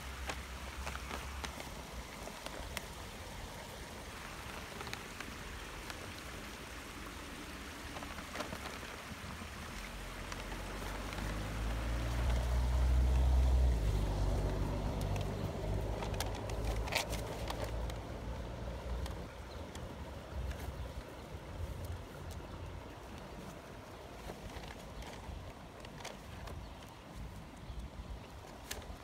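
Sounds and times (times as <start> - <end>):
small stream babbling: 0.0 - 29.0
passing motor vehicle rumble: 10.0 - 19.8.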